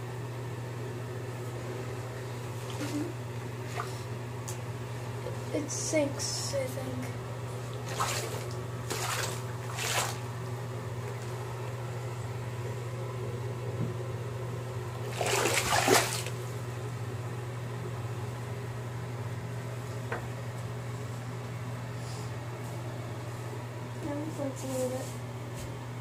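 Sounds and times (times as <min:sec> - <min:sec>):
bathtub water splashing: 0:02.4 - 0:04.6, 0:07.6 - 0:11.3, 0:15.0 - 0:16.5.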